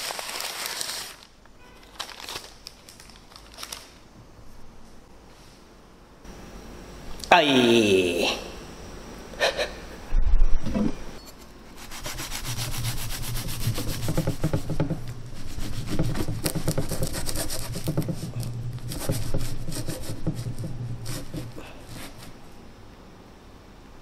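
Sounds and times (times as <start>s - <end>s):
knife rasping through flatbread: 11.8s - 22.4s.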